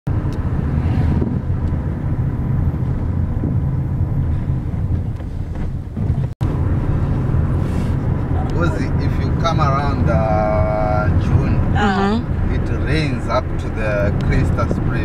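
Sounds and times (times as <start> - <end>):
car engine and road rumble: 0.1 - 15.0.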